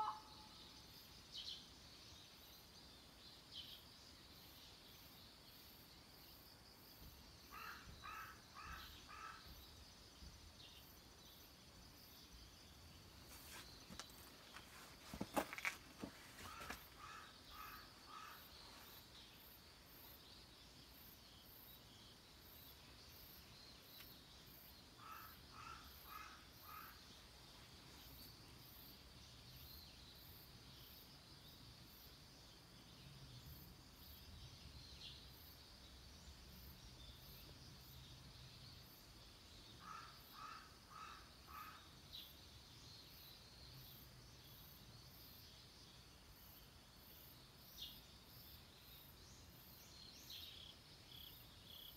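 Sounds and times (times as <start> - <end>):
bird calling: 0.0 - 0.6
high insect hum: 0.0 - 51.9.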